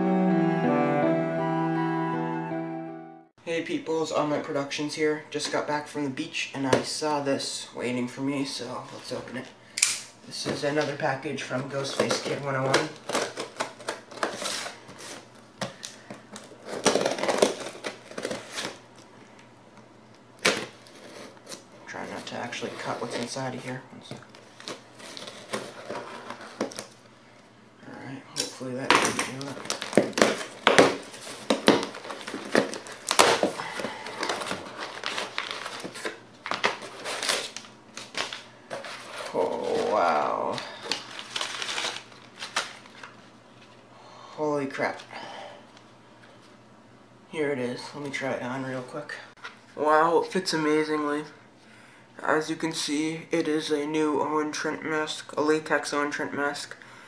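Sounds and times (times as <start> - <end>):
paper crinkling and rustling: 11.7 - 19.1, 20.4 - 27.0, 28.9 - 43.8
cardboard scraping: 20.6 - 21.6, 22.2 - 26.9, 29.3 - 40.5.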